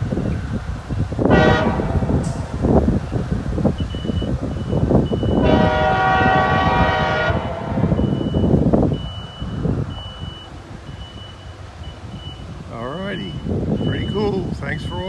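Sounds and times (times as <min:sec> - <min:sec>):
train horn blast: 0:01.3 - 0:02.5, 0:05.4 - 0:08.1.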